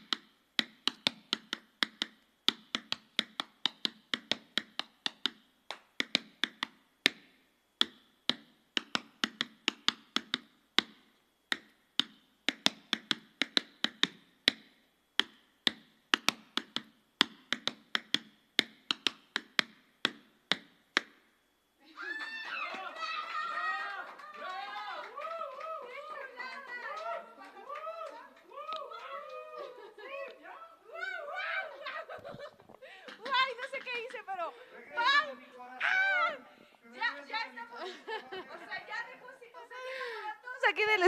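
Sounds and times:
tap shoes on tap board: 0:00.0 - 0:21.2.

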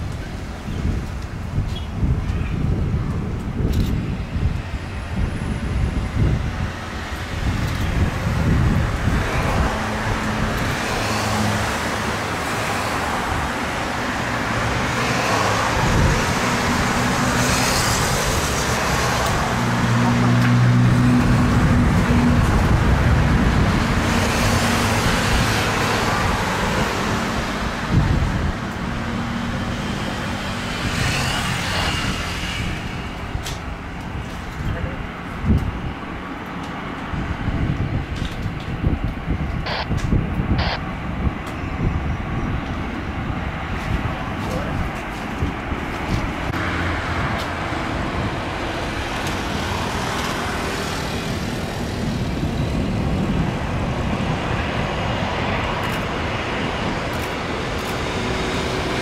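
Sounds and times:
jet airliner taxiing: 0:39.6 - 0:40.9.

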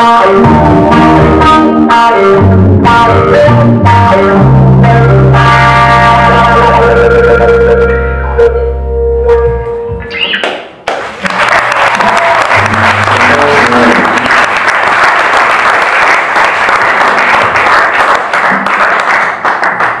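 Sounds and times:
electric guitar and bass notes: 0:00.0 - 0:10.8, 0:12.4 - 0:14.4
audience applauding: 0:10.4 - 0:20.0.

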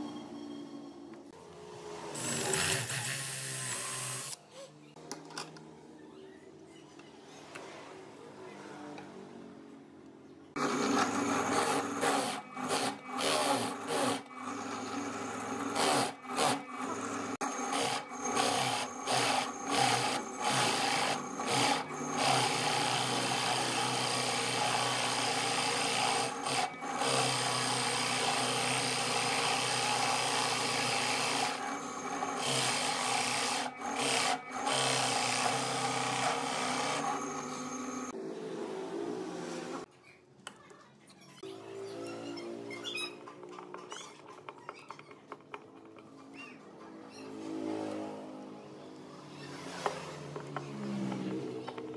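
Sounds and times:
drill press boring into wood: 0:02.1 - 0:04.4, 0:10.6 - 0:38.1.

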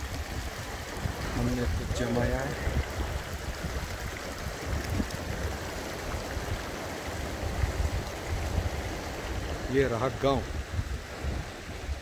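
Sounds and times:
stream rushing over stones: 0:00.0 - 0:12.0.

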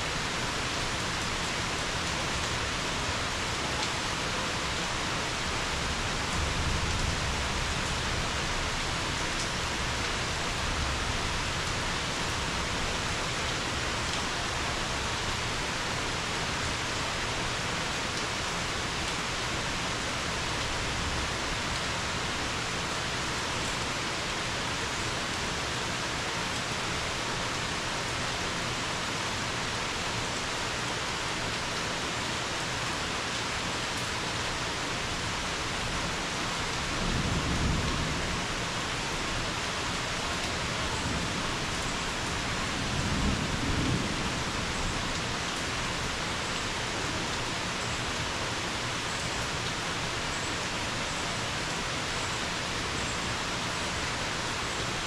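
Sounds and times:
rain pouring on leaves: 0:00.0 - 0:55.0.

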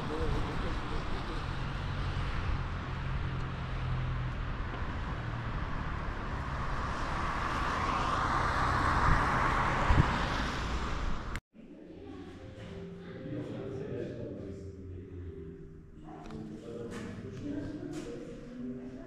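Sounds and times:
traffic road noise: 0:00.0 - 0:11.4
vehicle passing: 0:00.0 - 0:11.4.

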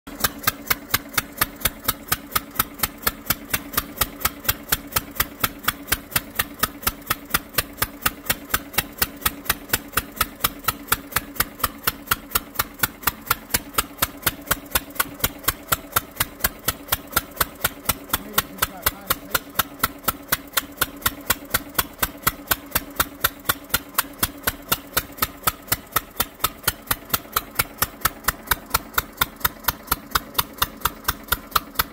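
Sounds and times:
stationary engine beats: 0:00.1 - 0:31.9.

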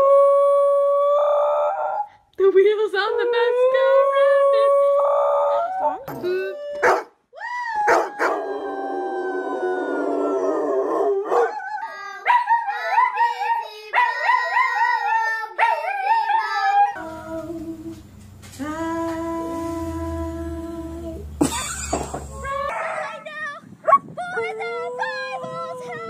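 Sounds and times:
children howling along: 0:07.4 - 0:18.0, 0:24.2 - 0:26.0
dogs howling: 0:07.7 - 0:17.1.

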